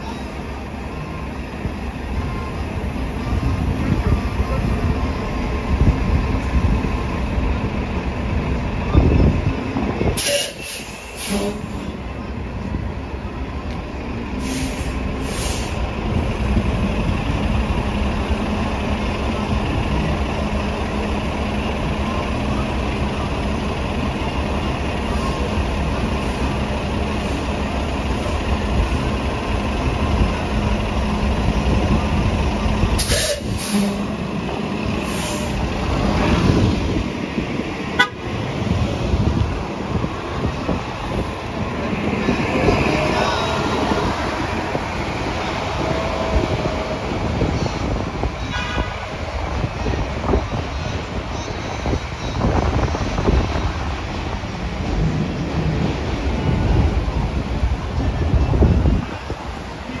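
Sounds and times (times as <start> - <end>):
bus diesel engine idling: 0.0 - 60.0
bus pulling in: 0.0 - 60.0
air brake hisses: 10.2 - 11.8, 14.4 - 15.8, 33.0 - 34.0, 35.0 - 35.6.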